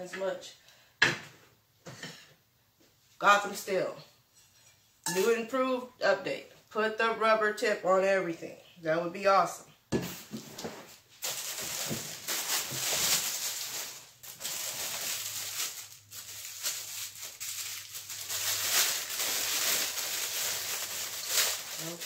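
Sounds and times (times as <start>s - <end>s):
plastic packaging crinkling: 10.5s - 22.0s.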